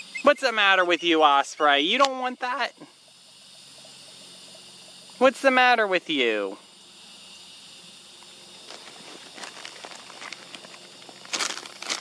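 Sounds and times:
faint outdoor hiss: 0.0s - 12.0s
close crackling and rustling: 8.6s - 12.0s.

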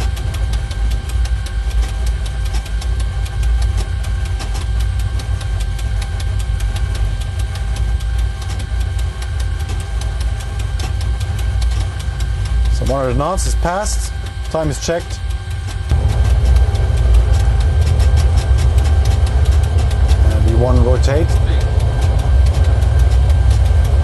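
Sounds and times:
deep engine rumble: 0.0s - 24.0s
fast rattle of clicks: 0.0s - 24.0s
thin steady whine: 0.0s - 24.0s.

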